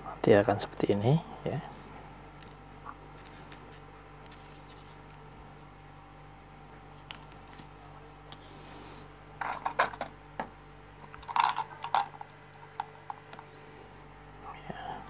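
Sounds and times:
small parts clicking and rattling: 9.4s - 10.1s, 11.1s - 13.4s.

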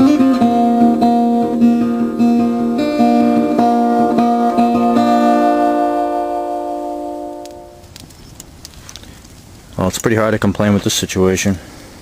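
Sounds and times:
acoustic guitar picking: 0.0s - 8.1s.

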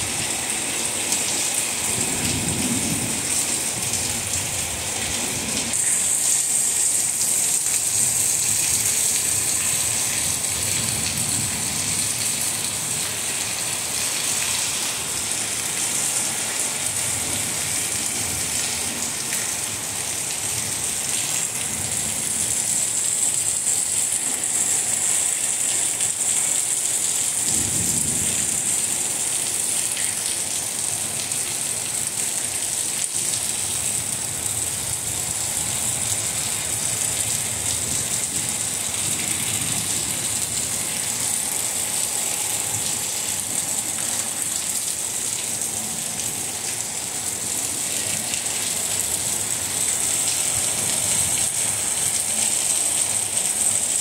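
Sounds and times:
steady rain falling: 0.0s - 54.0s
thunder rumbles: 1.8s - 5.8s, 27.4s - 29.2s.

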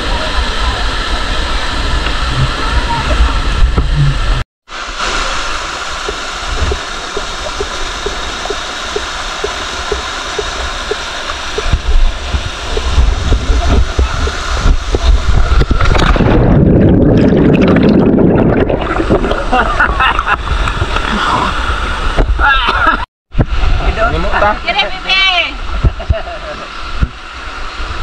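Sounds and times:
waterfall rushing over rock: 0.0s - 15.9s
muffled underwater bubbling rush: 0.0s - 22.2s.

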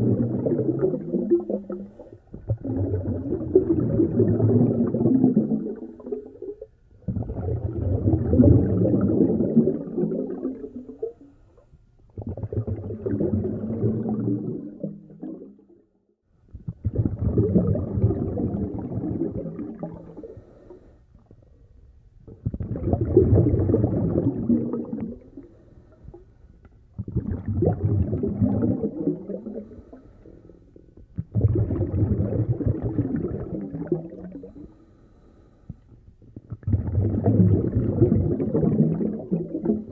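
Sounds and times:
muffled breathing through snorkel: 19.9s - 21.3s, 25.2s - 26.6s, 29.4s - 31.0s, 34.3s - 36.1s.

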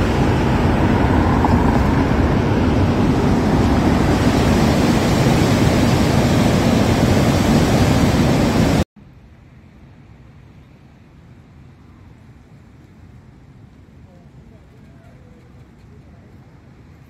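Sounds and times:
whitewater rushing: 0.0s - 8.8s.

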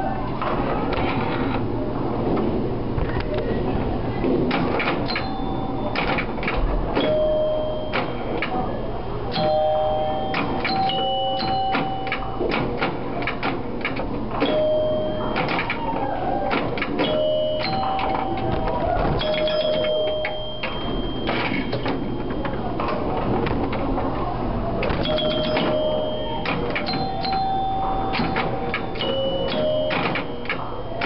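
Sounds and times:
pinball machine clatter: 4.2s - 31.0s
pinball chime bells ringing: 5.0s - 6.3s, 7.0s - 12.7s, 14.4s - 23.4s, 24.9s - 31.0s.

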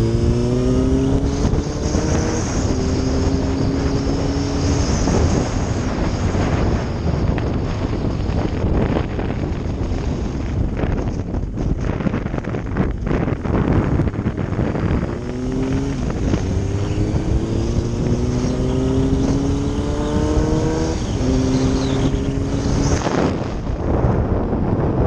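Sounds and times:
motorcycle engine accelerating: 0.0s - 25.0s
wind noise on microphone: 0.0s - 25.0s.

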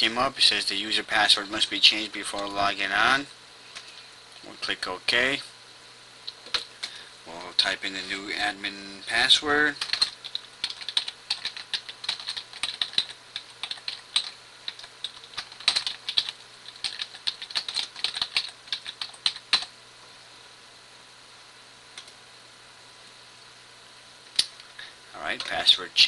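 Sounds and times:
faint low hum: 0.0s - 26.0s
keyboard typing: 6.4s - 6.7s, 9.7s - 19.7s.

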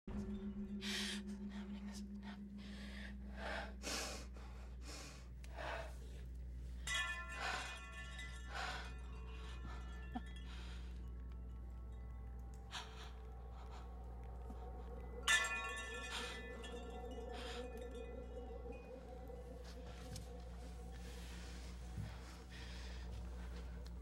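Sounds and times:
low suspense drone music: 0.0s - 24.0s
woman breathing in shaky gasps: 12.4s - 24.0s.

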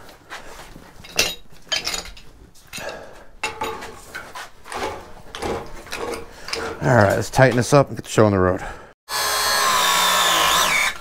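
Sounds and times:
metal pipe fittings clanking: 1.0s - 7.8s.

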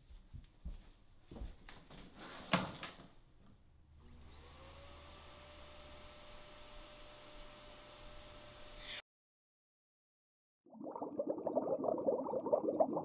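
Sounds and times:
vacuum cleaner running: 4.0s - 9.0s.

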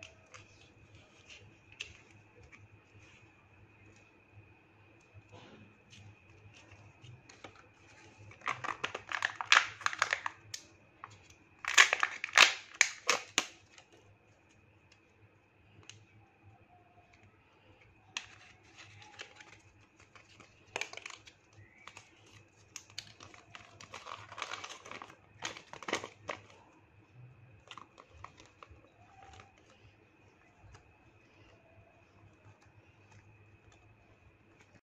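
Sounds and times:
crinkling plastic packaging: 6.0s - 14.6s, 18.0s - 34.8s.

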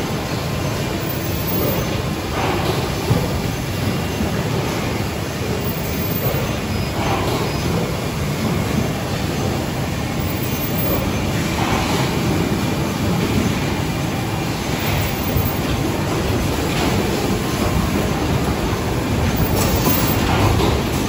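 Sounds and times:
box making machine running: 0.0s - 21.0s.

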